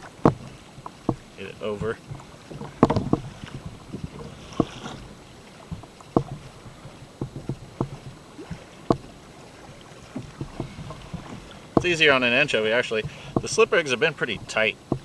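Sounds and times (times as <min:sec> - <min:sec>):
hands clicking and knocking on fishing rig: 0:01.8 - 0:05.0, 0:05.7 - 0:06.4, 0:07.2 - 0:09.1, 0:10.2 - 0:13.6, 0:14.5 - 0:15.0.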